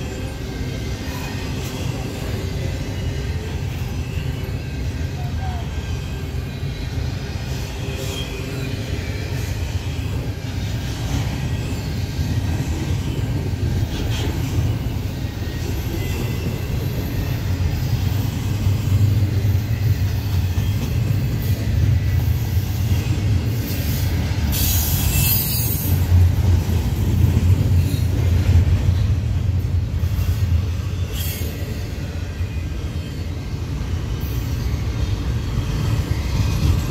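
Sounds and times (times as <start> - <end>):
freight train wheels rumbling on rail: 0.0 - 36.9
high-pitched wheel squeal: 24.5 - 26.0.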